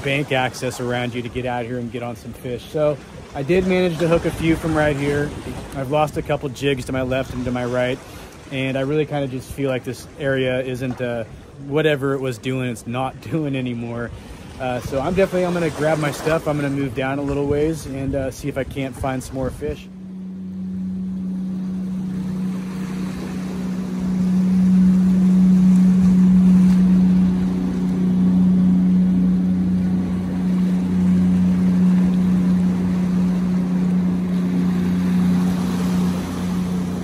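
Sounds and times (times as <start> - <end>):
motorboat engine droning: 0.0 - 37.0
water noise: 0.0 - 37.0
wind noise: 14.0 - 20.1.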